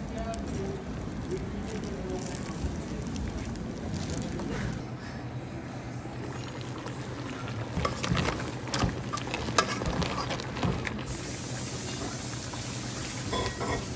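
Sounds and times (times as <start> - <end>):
crab shells clattering in pan: 7.7 - 11.1
sizzling in pan: 11.0 - 13.9.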